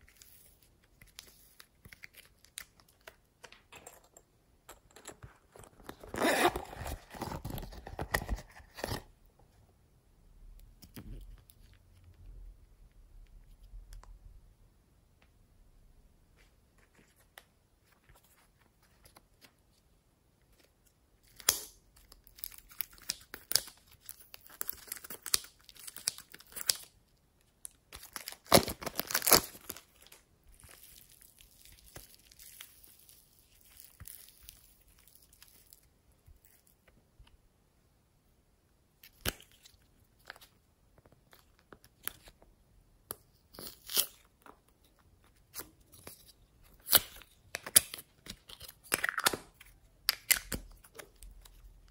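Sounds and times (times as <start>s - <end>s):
slime crackling and tearing: 28.0s - 36.6s.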